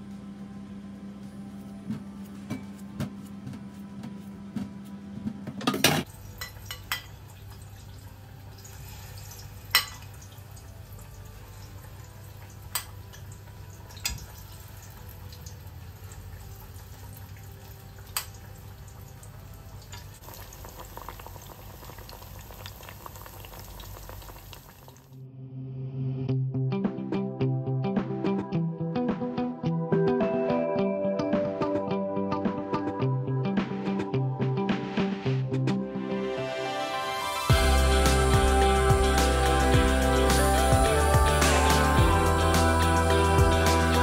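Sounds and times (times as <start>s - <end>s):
dishes and utensils clinking: 5.6s - 7.2s, 9.7s - 10.2s
lower hum: 37.5s - 44.0s.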